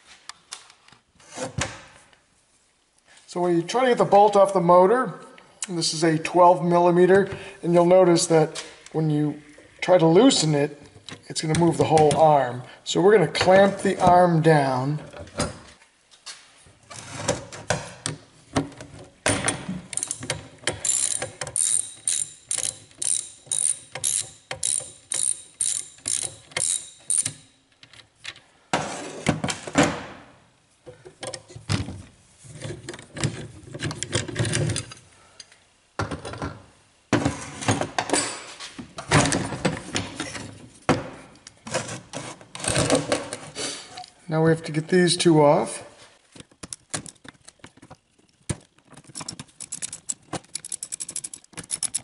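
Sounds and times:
ratchet wrench clicking: 19.9s - 27.6s, 49.5s - 52.0s.

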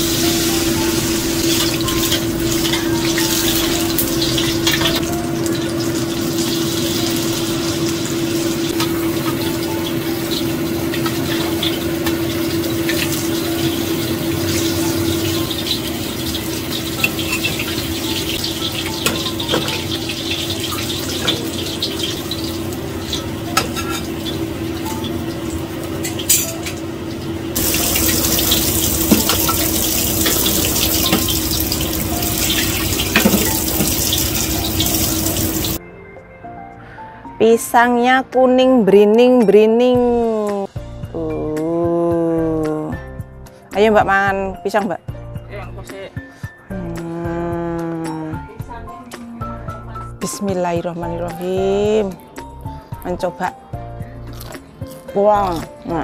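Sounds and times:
water running from tap: 0.0s - 35.8s
dishes clinking: 23.1s - 24.4s, 26.0s - 26.8s, 27.6s - 35.8s.

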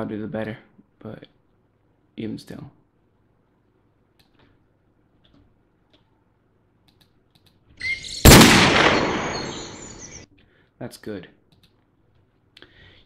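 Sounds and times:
faint mouse clicks: 4.1s - 4.6s, 6.8s - 7.6s, 11.5s - 12.8s
gunshot: 8.1s - 10.2s.

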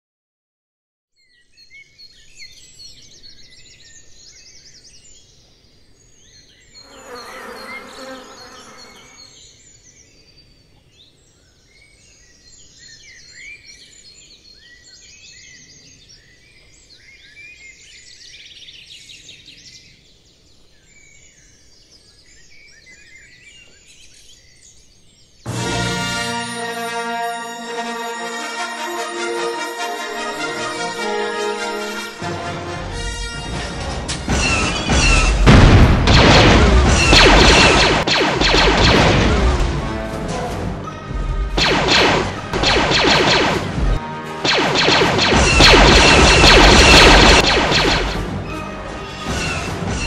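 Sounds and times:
small birds chirping: 1.2s - 25.5s
flying insect buzzing: 6.8s - 9.3s.

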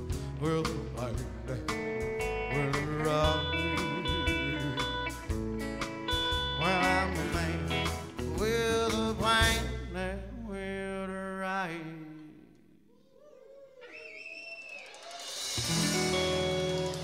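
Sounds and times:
country band playing live: 0.0s - 10.6s, 14.8s - 17.0s
gliding guitar notes: 15.6s - 17.0s.

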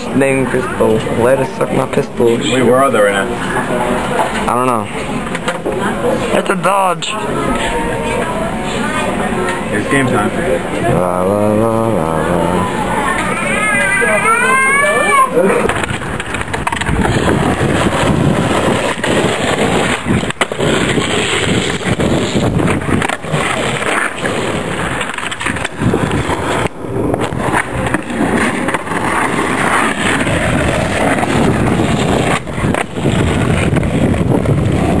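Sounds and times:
skateboard wheels rolling on asphalt: 0.0s - 35.0s
skateboard clacks: 5.2s - 5.9s, 15.4s - 35.0s.

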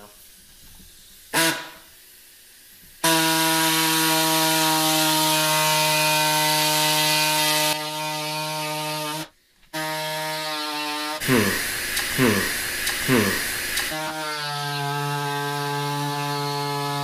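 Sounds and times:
power cutter cutting plastic: 3.0s - 17.0s.

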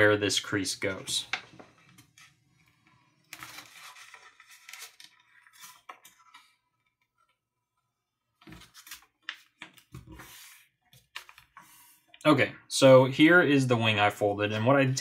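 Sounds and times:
paper rustling and crinkling: 3.2s - 7.3s, 8.4s - 11.6s.

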